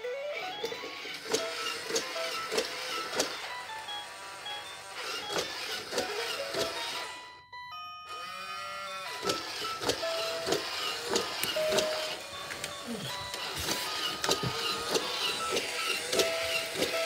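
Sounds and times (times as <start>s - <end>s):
toy legs clicking: 0.3s - 7.1s, 8.1s - 17.0s
toy motor whirring: 0.4s - 7.2s, 8.1s - 17.0s.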